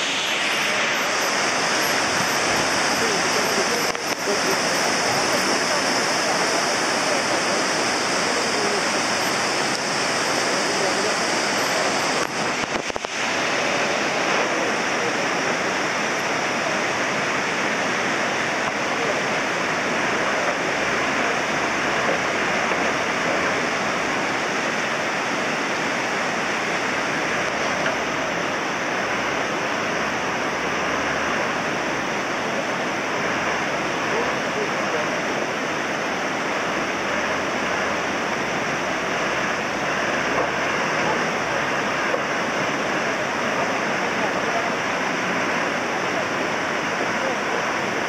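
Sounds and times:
stream rushing over boulders: 0:00.0 - 0:48.0.

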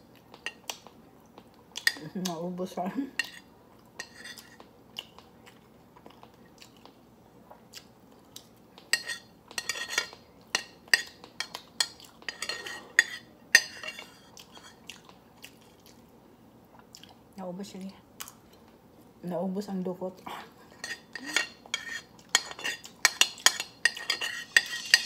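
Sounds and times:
metal spoon scraping a bowl: 0:04.0 - 0:04.6, 0:09.0 - 0:10.2, 0:12.3 - 0:14.8, 0:20.8 - 0:25.0.

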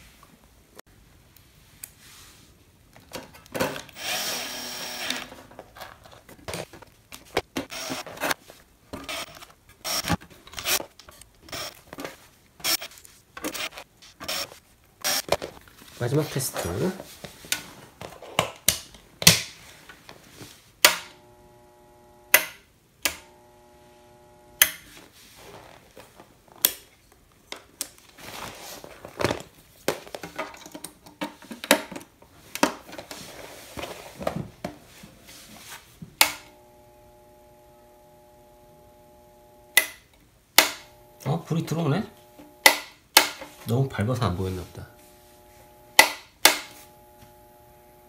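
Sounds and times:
power switch clicking: 0:22.3 - 0:23.3.

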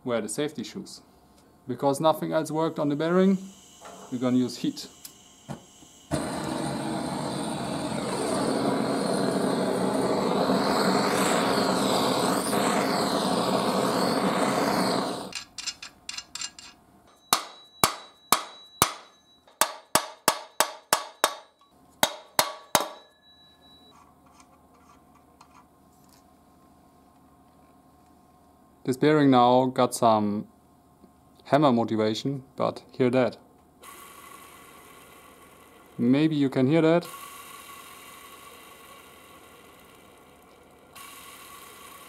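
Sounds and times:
blowtorch hissing: 0:02.8 - 0:15.4, 0:33.8 - 0:36.1, 0:37.0 - 0:40.2, 0:40.9 - 0:42.0.

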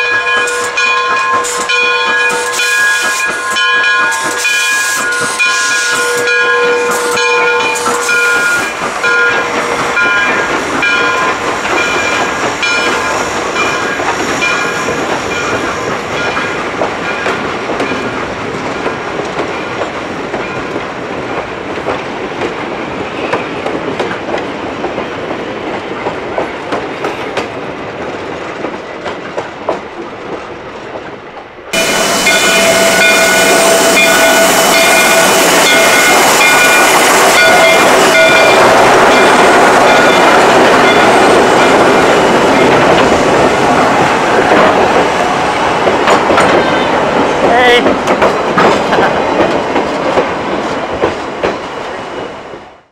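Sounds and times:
train wheels clicking over rail joints: 0:00.0 - 0:52.4
high metallic whine: 0:31.8 - 0:41.0.

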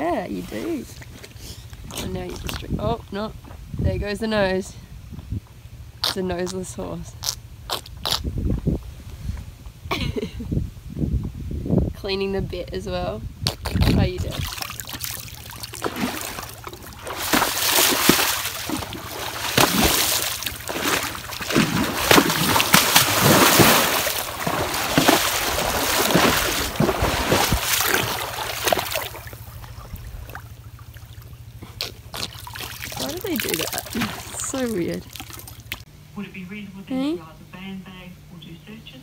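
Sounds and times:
horse splashing through water: 0:13.6 - 0:35.9.

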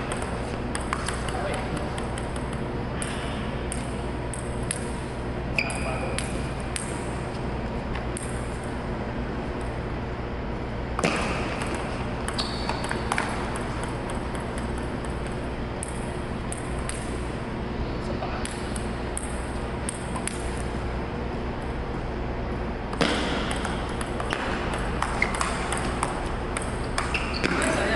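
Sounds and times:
table tennis ball clicking: 0:00.0 - 0:05.0, 0:05.6 - 0:07.1, 0:11.0 - 0:17.3, 0:18.4 - 0:20.7, 0:22.9 - 0:27.9
steady low hum: 0:00.0 - 0:27.9.

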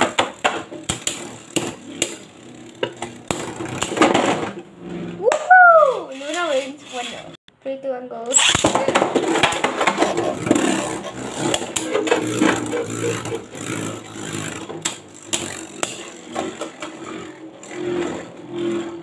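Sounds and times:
spinning tops whirring: 0:00.0 - 0:07.4, 0:08.3 - 0:19.0.

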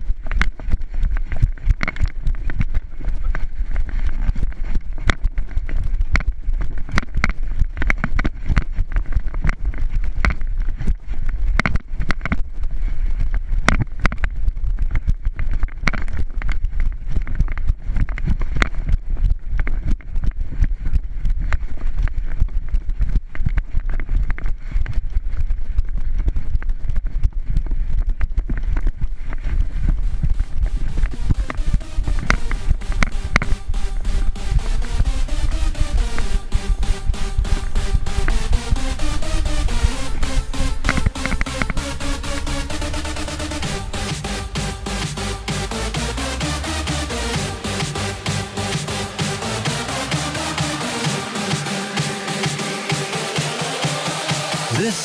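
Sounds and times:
camera thumping and rubbing: 0:00.0 - 0:34.1.

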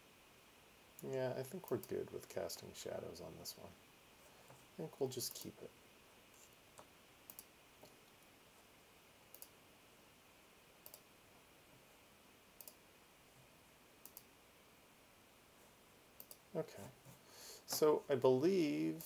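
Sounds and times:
computer mouse clicks: 0:06.8 - 0:08.0, 0:09.3 - 0:09.6, 0:10.8 - 0:11.1, 0:12.6 - 0:12.8, 0:14.0 - 0:14.3, 0:16.2 - 0:16.4.

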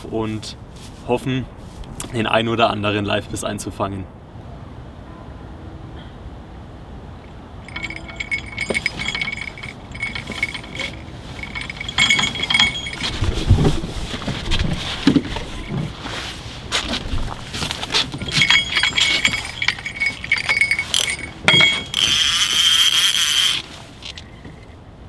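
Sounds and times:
fishing rod jingling and ticking: 0:07.6 - 0:16.1, 0:16.8 - 0:24.7
rustling: 0:07.6 - 0:24.8.

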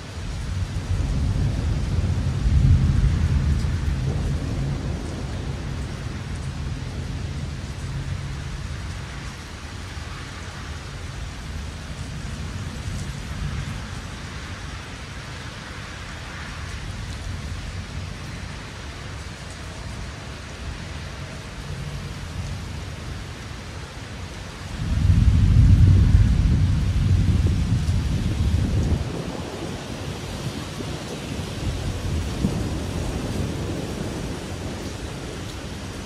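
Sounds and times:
rain falling: 0:00.0 - 0:36.0
rumbling thunder: 0:00.6 - 0:08.6, 0:24.8 - 0:36.0.

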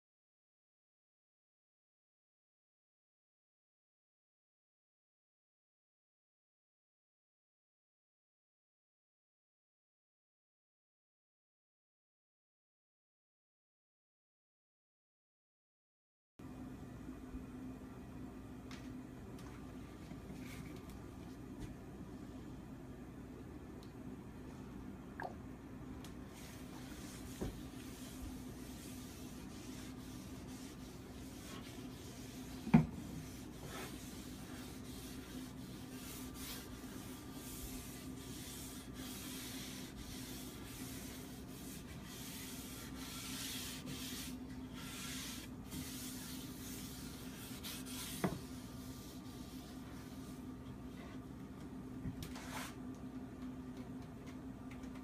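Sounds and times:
steady low hum: 0:16.4 - 0:55.0
cloth rubbing wood: 0:26.3 - 0:51.2.

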